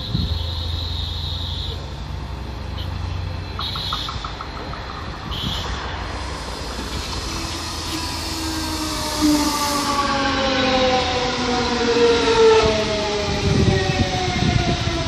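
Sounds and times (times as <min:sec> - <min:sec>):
train wheels rumbling on rails: 0:03.2 - 0:15.0
electric train motor whine: 0:06.1 - 0:15.0.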